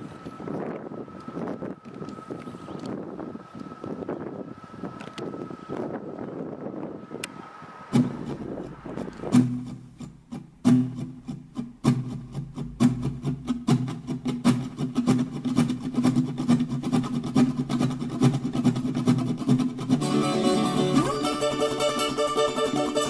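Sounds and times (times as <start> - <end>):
plucked guitar melody: 8.0 - 23.0
rhythmic strummed strokes: 8.0 - 23.0.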